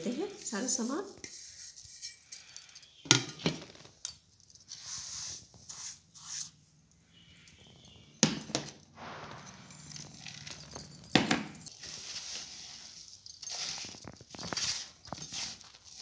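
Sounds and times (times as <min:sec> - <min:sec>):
hand scraping dry mixture on steel: 0:04.6 - 0:07.6, 0:11.6 - 0:16.0.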